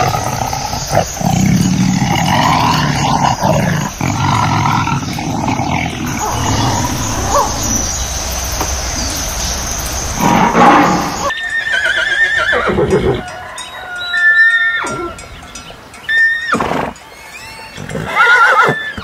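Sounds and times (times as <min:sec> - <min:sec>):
horses neighing: 0:00.0 - 0:09.2, 0:10.2 - 0:13.4, 0:16.2 - 0:19.0
lion roaring: 0:00.0 - 0:11.3.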